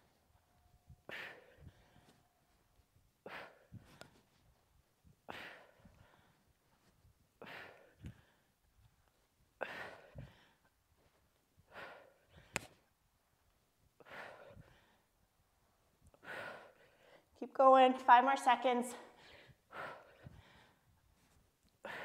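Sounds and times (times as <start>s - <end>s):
woman breathing out forcefully: 1.0s - 2.2s, 21.8s - 22.0s.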